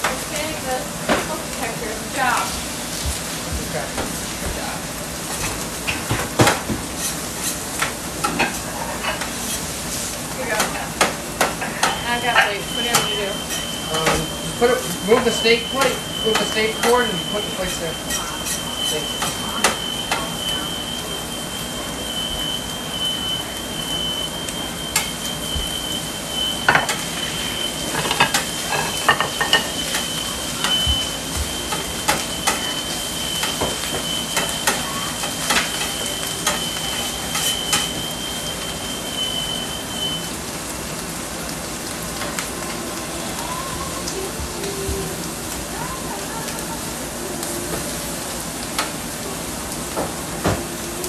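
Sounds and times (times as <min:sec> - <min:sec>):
food sizzling on a griddle: 0:00.0 - 0:51.0
metal spatula scraping a griddle: 0:06.9 - 0:09.8, 0:17.7 - 0:19.8, 0:26.7 - 0:30.0
thin steady high tone: 0:11.5 - 0:40.6.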